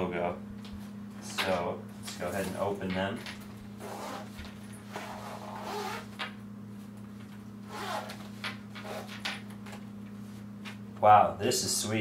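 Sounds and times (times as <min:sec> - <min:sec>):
zipper being pulled: 0:03.8 - 0:06.2, 0:07.6 - 0:09.2.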